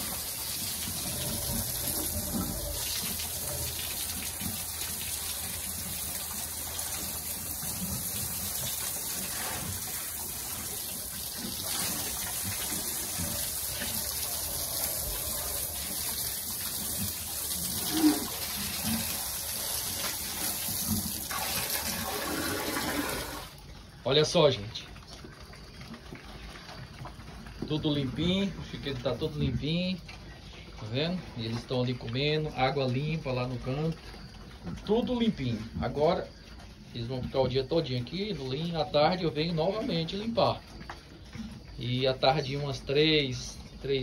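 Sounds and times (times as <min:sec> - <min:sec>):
hose spraying water on concrete: 0:00.0 - 0:23.6.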